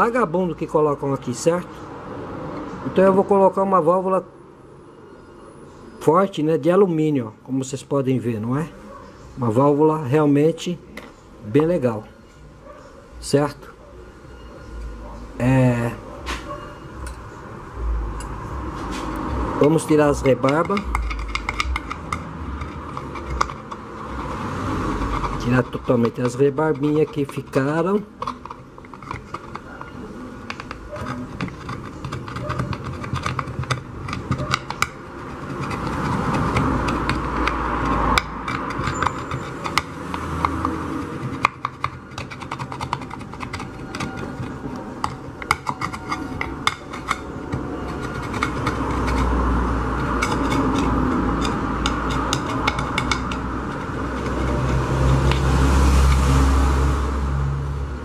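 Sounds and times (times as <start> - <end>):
tool scraping metal: 18.2 - 56.9
metal clicks and knocks: 19.1 - 56.3.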